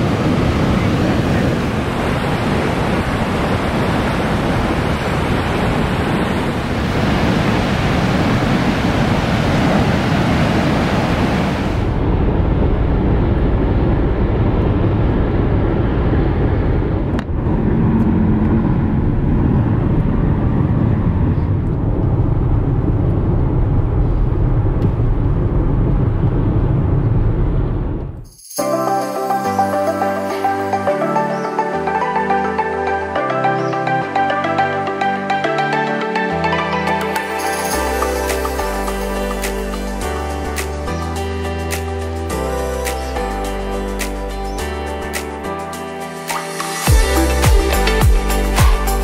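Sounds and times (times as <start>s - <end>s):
surf breaking on rocky beach: 0.0s - 12.2s
road and engine noise inside car: 11.7s - 28.3s.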